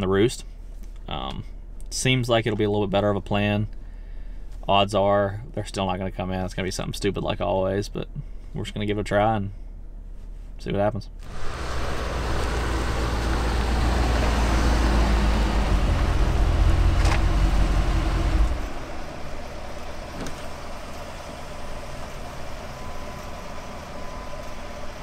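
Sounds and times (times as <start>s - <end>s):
pickup truck engine running: 11.2s - 25.0s.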